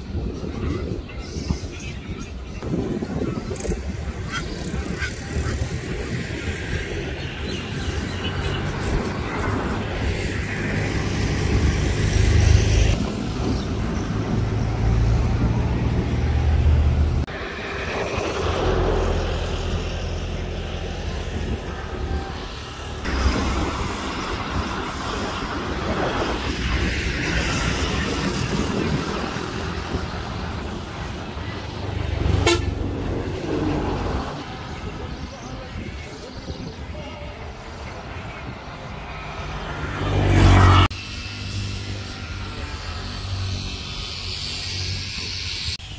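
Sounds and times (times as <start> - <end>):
road traffic rumble: 0.0 - 45.9
vehicle horns tooting: 32.2 - 32.9.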